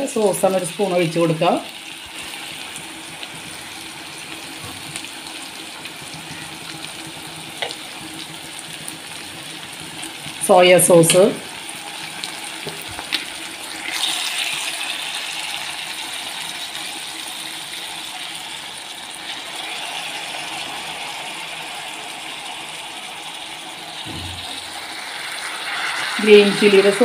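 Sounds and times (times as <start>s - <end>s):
vegetables sizzling in oil: 0.0s - 27.0s
sauce pouring into pan: 11.5s - 26.2s.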